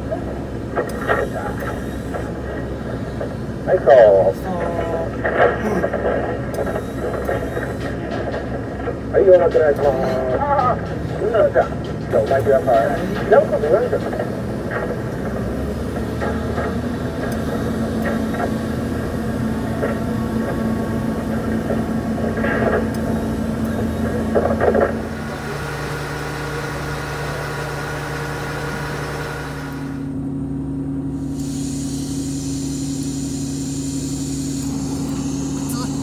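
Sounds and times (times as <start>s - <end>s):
diesel engine running: 0.0s - 36.0s
gas stove hissing: 31.1s - 36.0s.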